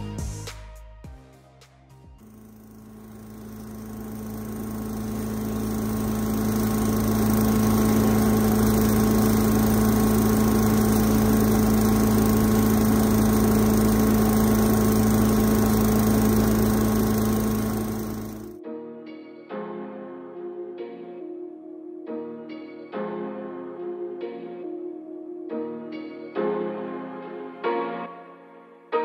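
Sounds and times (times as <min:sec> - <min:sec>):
engine and blower droning: 0:02.2 - 0:18.6.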